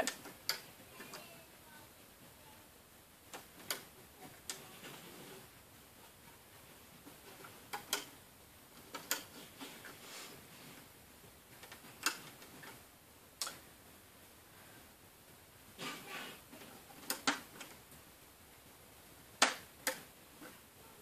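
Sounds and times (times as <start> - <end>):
rubber bands clicking and snapping: 0.0 - 1.2, 3.2 - 4.6, 7.0 - 8.2, 11.6 - 12.8, 13.4 - 13.7, 16.9 - 17.9, 19.4 - 20.1.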